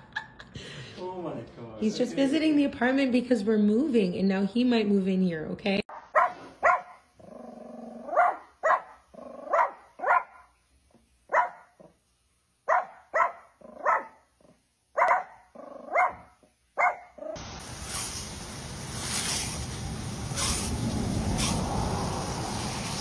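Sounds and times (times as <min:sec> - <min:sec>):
dog barking: 0:05.9 - 0:07.1, 0:08.0 - 0:10.5, 0:11.3 - 0:11.8, 0:12.7 - 0:14.2, 0:15.0 - 0:17.2.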